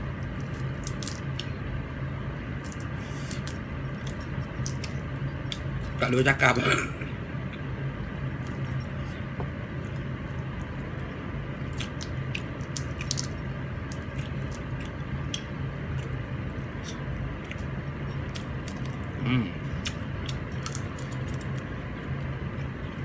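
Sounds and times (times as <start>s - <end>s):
steady low hum: 0.0s - 23.0s
chewing: 11.7s - 16.2s, 16.8s - 19.2s, 19.8s - 21.7s.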